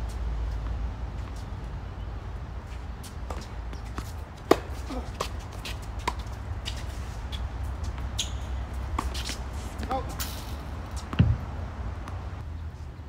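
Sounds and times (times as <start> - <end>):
tennis ball hits and bounces: 3.0 - 12.3.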